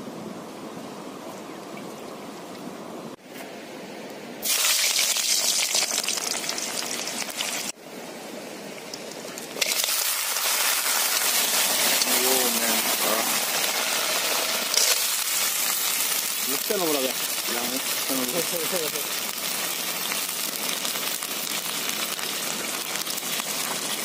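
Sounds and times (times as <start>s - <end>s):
hot oil sizzling in wok: 4.4s - 7.8s, 8.7s - 24.0s.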